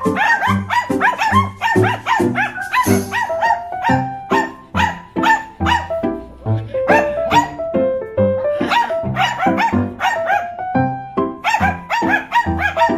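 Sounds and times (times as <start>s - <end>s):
small dogs barking and yipping: 0.0s - 6.0s, 6.8s - 7.6s, 8.6s - 10.6s, 11.4s - 12.9s
background music with beat: 0.0s - 6.2s.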